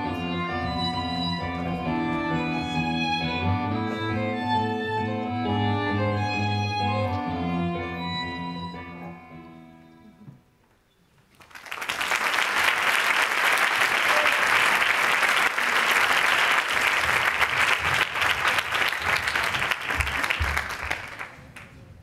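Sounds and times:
audience applauding: 11.3 - 21.7.

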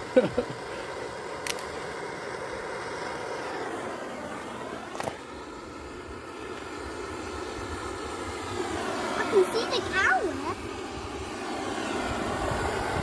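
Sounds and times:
blowtorch hissing: 0.0 - 13.0
sharp click: 1.4 - 1.7.

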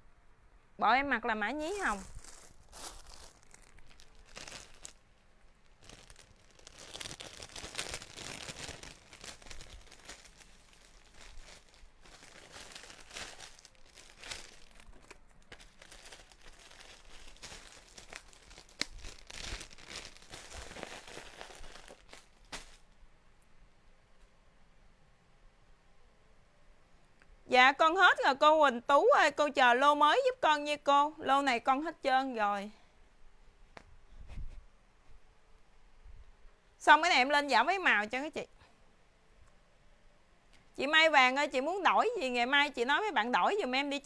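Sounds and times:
plastic bag crinkling: 1.6 - 23.0.

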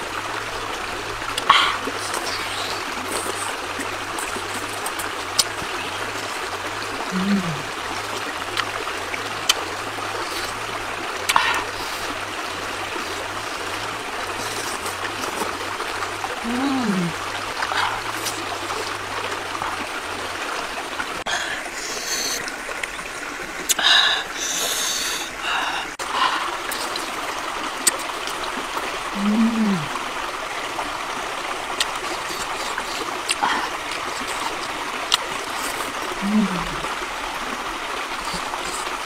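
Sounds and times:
running water hiss: 0.0 - 39.0
wet chewing and mouth noises: 1.3 - 10.6, 11.2 - 20.2, 26.2 - 30.0, 31.7 - 37.5, 38.1 - 39.0
person humming: 7.0 - 7.8, 16.4 - 18.5, 29.1 - 30.0, 36.2 - 37.0.

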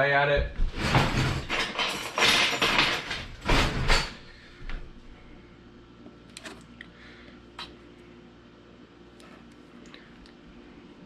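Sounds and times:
drawer sliding and rattling: 0.7 - 4.2.

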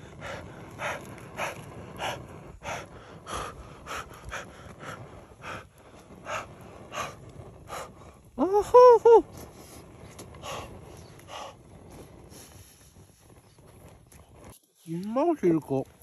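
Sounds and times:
man panting through mouth: 0.0 - 8.2.

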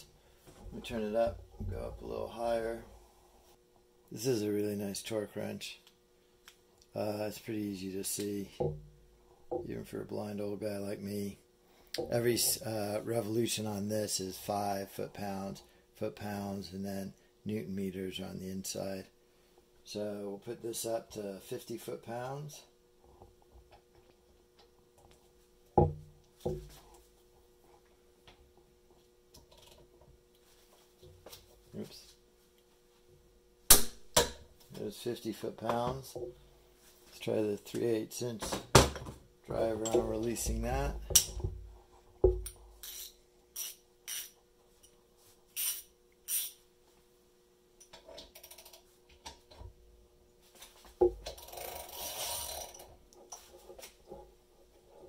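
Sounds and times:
ratchet clicking: 42.8 - 44.4, 45.6 - 46.6.

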